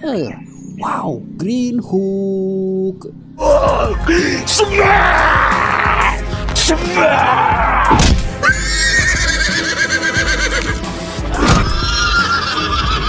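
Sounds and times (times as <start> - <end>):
background music: 0.0 - 13.0
horse whinnying: 7.2 - 10.8, 11.4 - 13.0.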